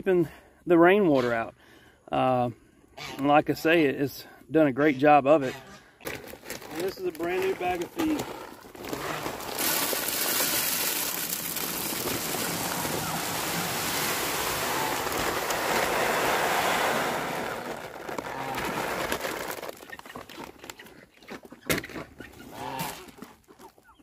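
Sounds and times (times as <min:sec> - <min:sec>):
dry feed pouring into tube: 0:06.6 - 0:20.0.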